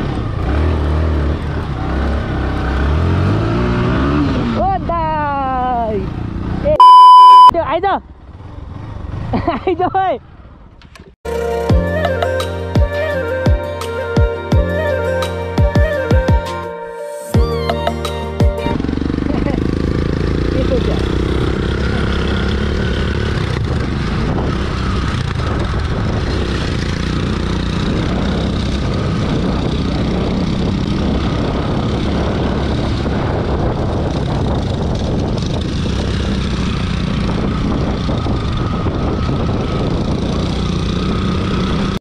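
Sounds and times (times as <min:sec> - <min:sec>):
motorcycle engine running: 0:18.3 - 0:42.0.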